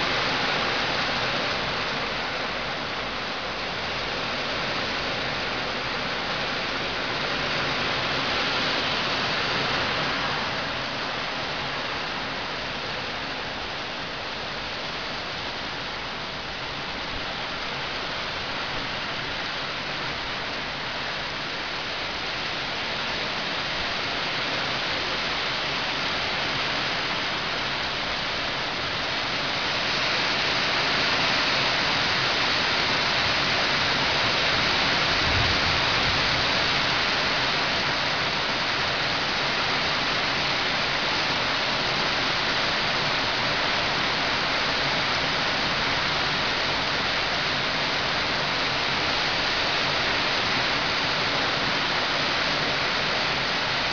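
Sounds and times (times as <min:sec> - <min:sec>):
heavy rain pouring: 0:00.0 - 0:53.9.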